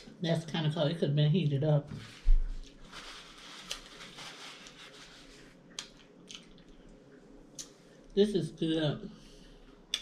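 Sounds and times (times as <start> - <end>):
rustling: 2.0 - 5.6
soft chewing: 2.4 - 8.2.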